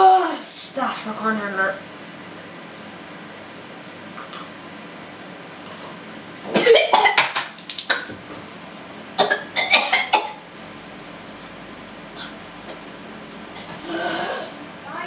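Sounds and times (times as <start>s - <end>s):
boy coughing and gagging: 6.6s - 7.2s, 9.2s - 10.4s, 13.6s - 14.6s.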